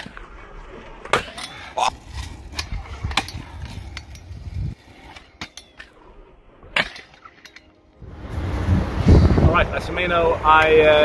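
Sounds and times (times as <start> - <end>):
scooter wheels rolling on asphalt: 1.6 - 6.0.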